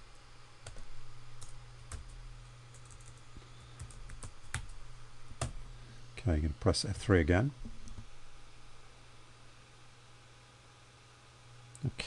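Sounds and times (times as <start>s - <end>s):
computer keyboard typing: 0.6s - 3.2s, 3.8s - 4.8s, 5.4s - 5.6s.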